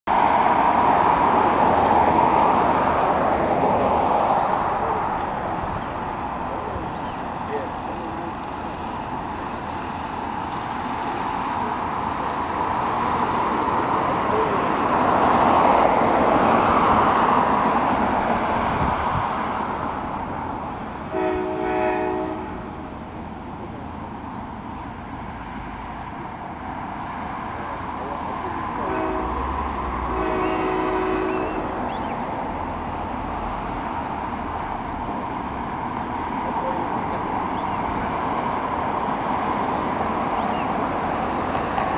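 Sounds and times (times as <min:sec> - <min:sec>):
broad rushing noise: 0:00.1 - 0:21.4
distant train horn blasts: 0:21.0 - 0:22.8, 0:28.7 - 0:32.1.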